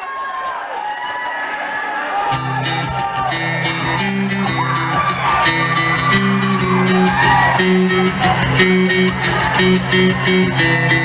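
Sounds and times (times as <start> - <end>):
live rock band playing: 2.4 - 11.0.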